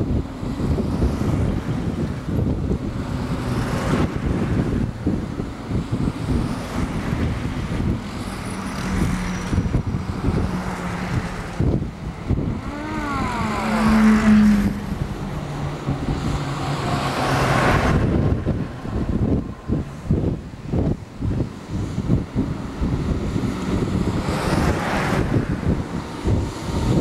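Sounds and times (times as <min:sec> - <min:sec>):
military vehicles driving past: 0:00.0 - 0:27.0.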